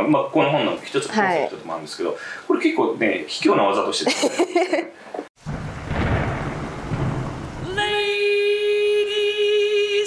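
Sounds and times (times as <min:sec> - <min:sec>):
thunder rumbling: 0:05.4 - 0:08.4.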